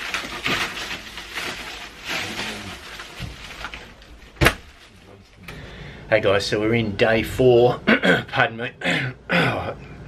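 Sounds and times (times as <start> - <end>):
plastic bags rustling: 0.0 - 5.4.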